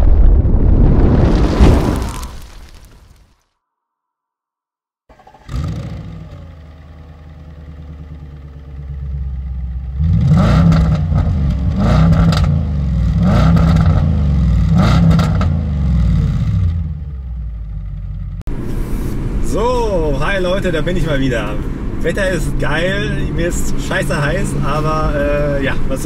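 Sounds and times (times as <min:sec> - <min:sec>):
car engine idling: 0:05.1 - 0:10.4, 0:16.9 - 0:25.9
car engine revving: 0:05.1 - 0:25.4.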